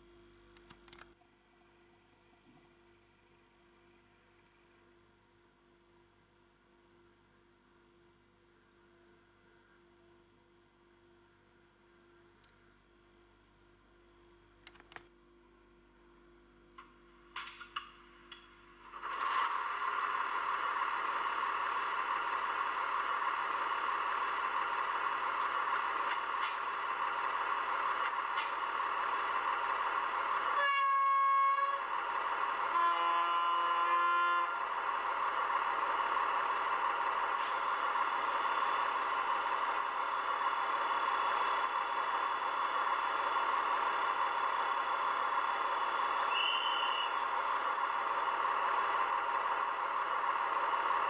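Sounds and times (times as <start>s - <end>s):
high compressor whine: 17.4s - 51.0s
simulated diesel engine running: 18.3s - 51.0s
two-note train horn: 30.5s - 31.9s, 32.7s - 34.8s.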